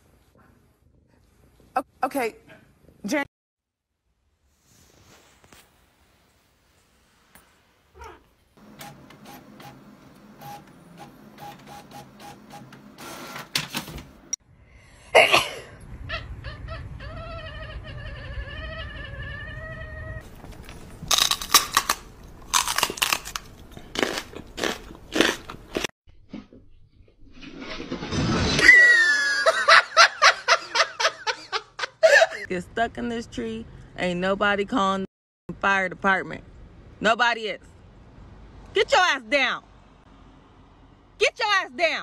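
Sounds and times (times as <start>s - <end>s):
cat yowling: 8.0s - 8.3s
loud irregular crunching: 20.2s - 25.9s.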